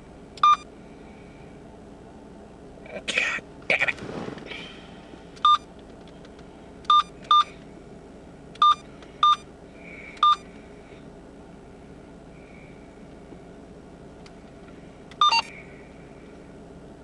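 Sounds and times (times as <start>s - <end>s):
car interior background noise: 0.0s - 17.0s
electronic keypad beeps: 0.4s - 0.7s, 5.4s - 5.7s, 6.9s - 7.5s, 8.6s - 9.5s, 10.2s - 10.4s, 15.2s - 15.5s.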